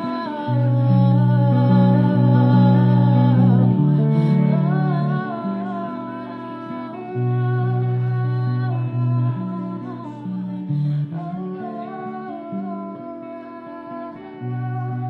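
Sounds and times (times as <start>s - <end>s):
sustained electric guitar: 0.0s - 15.0s.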